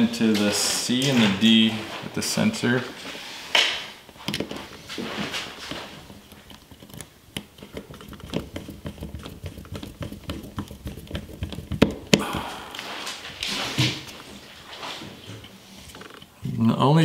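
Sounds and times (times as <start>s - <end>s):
screwdriver clicking and scraping: 6.0s - 12.0s.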